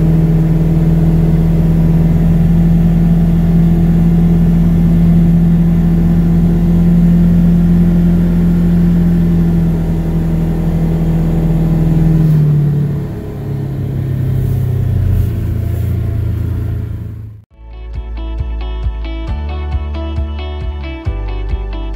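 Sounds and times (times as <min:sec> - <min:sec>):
vehicle engine driving: 0:00.0 - 0:17.5.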